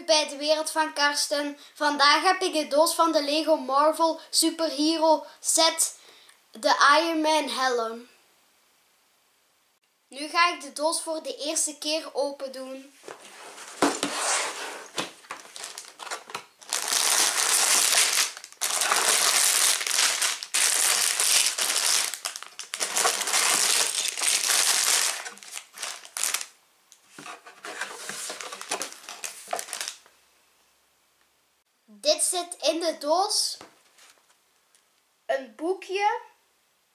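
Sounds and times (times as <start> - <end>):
plastic bags crinkling: 14.8 - 26.6, 27.3 - 30.1.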